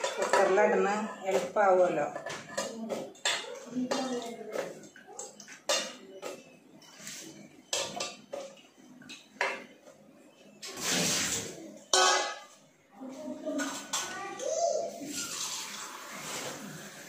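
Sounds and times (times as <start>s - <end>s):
metal pots clinking: 0.0s - 6.5s, 7.6s - 9.8s, 11.8s - 12.6s.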